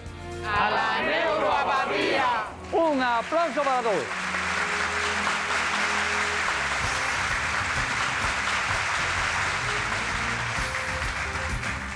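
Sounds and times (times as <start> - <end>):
music playing: 0.0 - 11.9
applause: 2.4 - 11.9.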